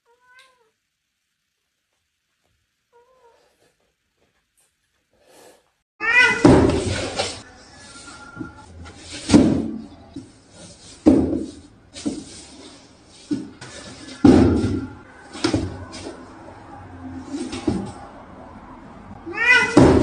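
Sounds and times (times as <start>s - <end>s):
cat bumping cardboard box: 11.0s - 12.3s.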